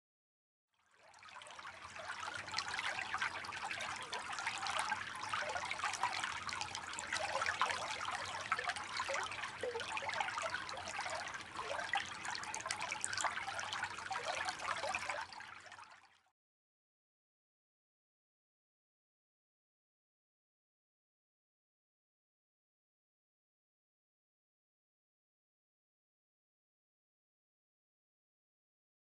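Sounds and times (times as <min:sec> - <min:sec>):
creek trickling: 0:01.0 - 0:16.0.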